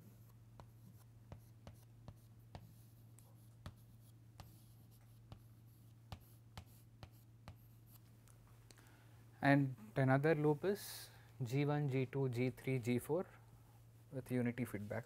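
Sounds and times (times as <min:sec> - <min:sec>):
chalk tapping on blackboard: 0:00.6 - 0:08.0.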